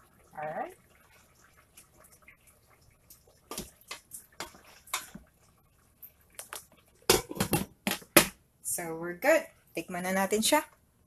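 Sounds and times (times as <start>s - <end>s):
glass lid clattering on pot: 7.1s - 8.0s.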